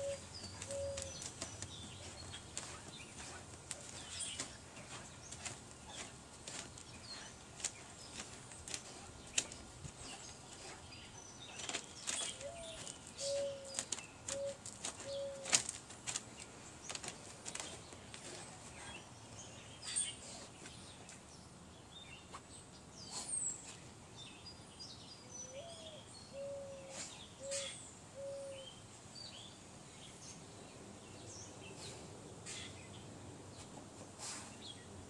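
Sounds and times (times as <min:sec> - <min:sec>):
faint bird chirps: 0:00.0 - 0:03.4, 0:25.2 - 0:28.8
dove cooing: 0:00.0 - 0:03.9, 0:11.6 - 0:15.7, 0:26.4 - 0:28.6
dog digging in dry dirt: 0:00.0 - 0:20.9.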